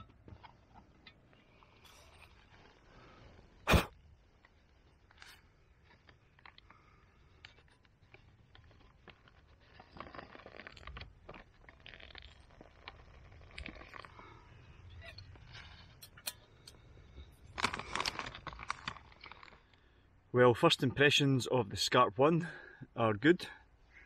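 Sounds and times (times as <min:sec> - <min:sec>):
plastic pouch crinkling: 0:07.3 - 0:16.0, 0:17.4 - 0:19.8.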